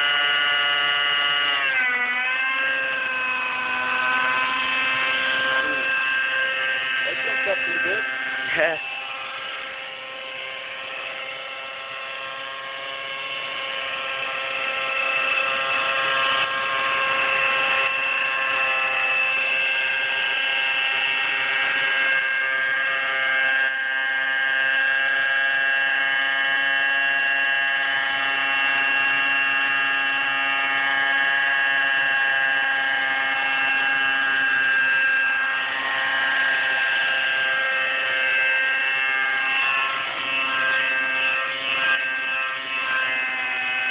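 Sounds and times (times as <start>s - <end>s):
model helicopter engine droning: 0.0s - 43.9s.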